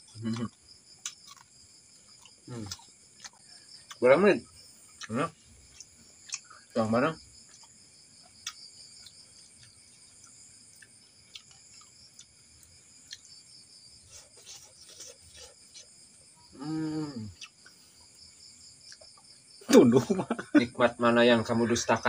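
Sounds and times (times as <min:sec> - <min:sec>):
crickets chirping: 0:00.0 - 0:22.0
man humming appreciative mmm: 0:00.2 - 0:00.6, 0:16.6 - 0:17.5
chips crunching as chewed: 0:00.2 - 0:01.6.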